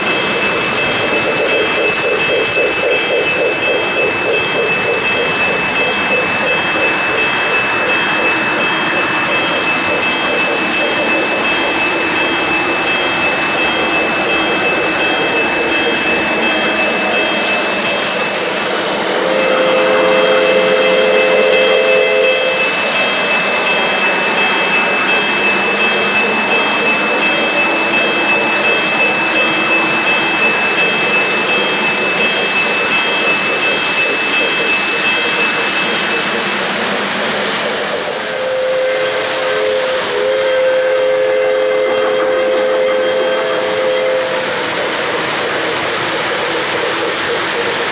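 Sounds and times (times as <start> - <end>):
model train cars rumbling: 0.0 - 47.9
electronic train whistle chord: 19.1 - 23.0, 38.0 - 44.8.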